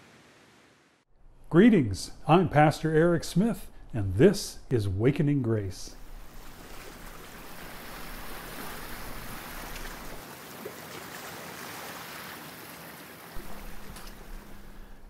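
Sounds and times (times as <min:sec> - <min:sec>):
ocean surf washing onto beach: 0:05.9 - 0:15.0.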